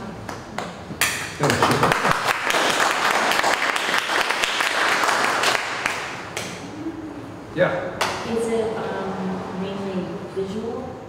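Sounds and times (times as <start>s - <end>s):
audience applauding: 1.4s - 6.2s.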